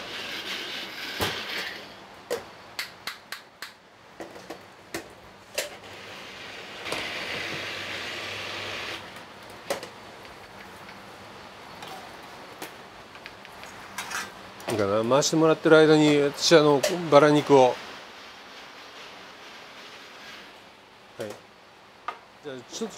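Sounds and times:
blender chopping: 5.8s - 9.0s.

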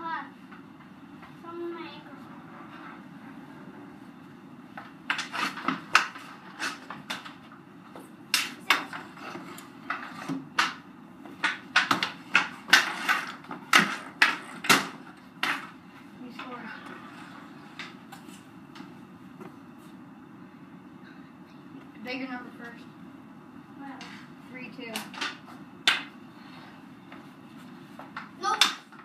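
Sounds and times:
hockey sticks clacking on concrete: 4.8s - 19.5s, 24.9s - 26.2s, 28.0s - 29.0s.

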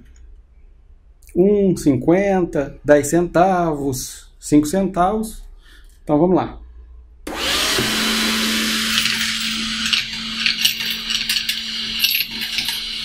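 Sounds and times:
handheld vacuum running: 7.3s - 13.0s
coins clicking and rattling: 8.8s - 13.0s.

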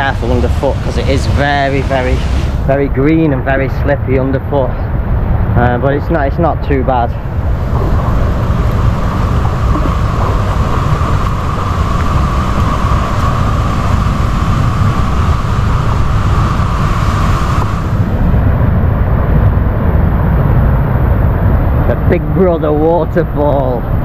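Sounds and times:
river and waterfall rushing: 0.0s - 2.7s, 7.2s - 18.0s
low rumble: 0.0s - 24.0s.

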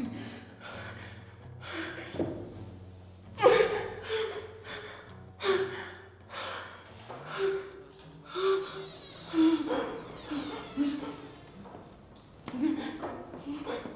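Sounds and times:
woman gasping and breathing heavily: 3.4s - 11.4s, 12.5s - 13.9s.

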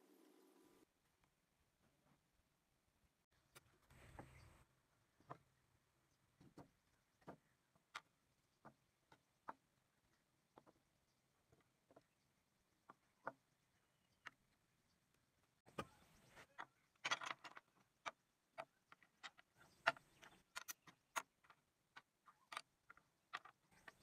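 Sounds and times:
wooden parts clicking on workbench: 15.8s - 24.0s
rustling of handled pieces: 16.0s - 24.0s.

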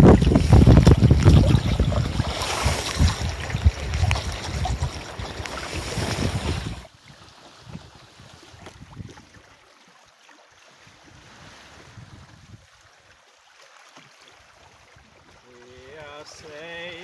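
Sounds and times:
wind buffeting microphone: 0.0s - 6.9s, 7.6s - 9.4s, 11.1s - 12.7s
water splashing against hulls: 0.0s - 17.0s.

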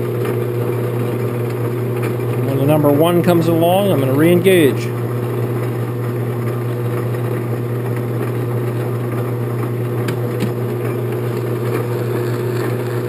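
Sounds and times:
metal lathe running with motor hum: 0.0s - 13.0s.

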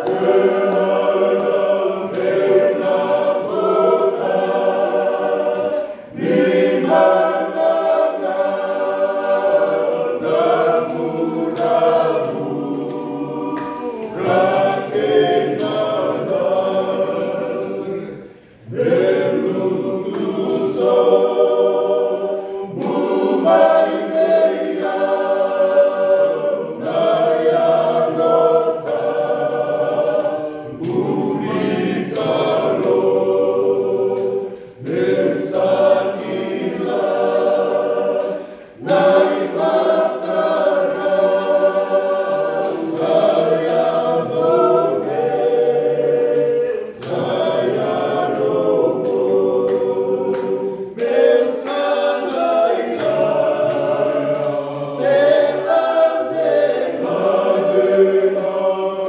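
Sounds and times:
group singing a hymn a cappella: 0.0s - 59.0s.

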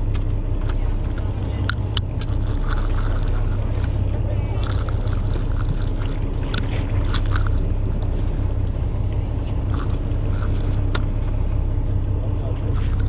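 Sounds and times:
boat engine humming: 0.0s - 13.0s
fishing reel clicks and rattles: 0.6s - 3.9s, 4.6s - 7.8s, 9.7s - 11.0s.

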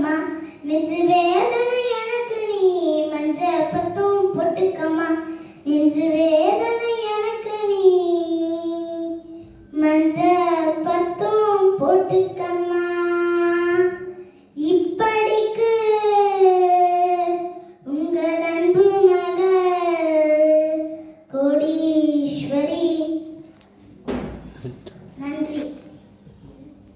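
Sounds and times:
girl singing unaccompanied: 0.0s - 23.3s.

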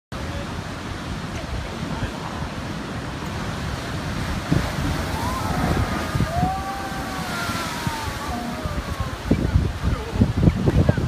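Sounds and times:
surf: 0.1s - 11.0s
wind on microphone: 0.2s - 11.0s
blowhole water boom: 2.5s - 10.7s.

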